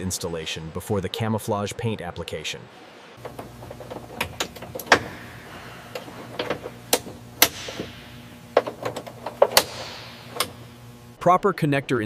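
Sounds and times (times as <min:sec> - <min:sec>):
low machinery hum: 0:00.0 - 0:11.3.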